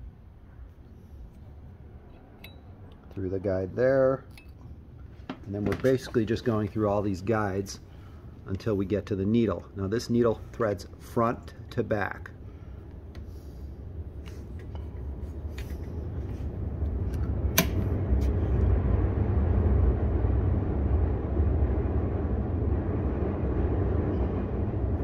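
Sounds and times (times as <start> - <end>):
low rumble: 12.3 - 25.0.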